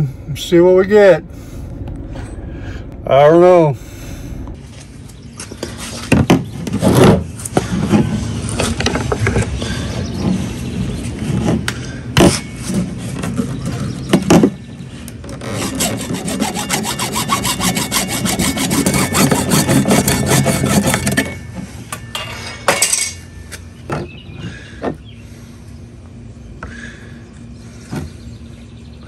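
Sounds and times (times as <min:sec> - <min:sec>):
hand saw cutting plastic pipe: 0:15.3 - 0:21.3.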